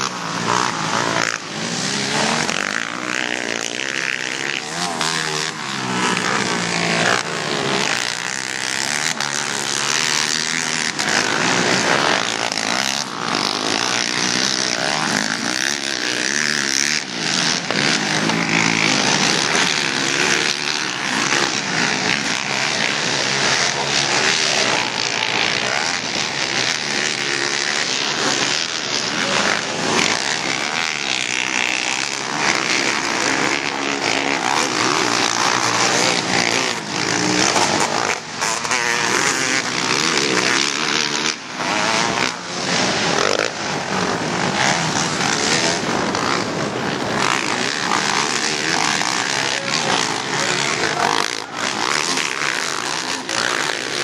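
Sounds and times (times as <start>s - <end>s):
quad engines revving: 0.0s - 54.0s.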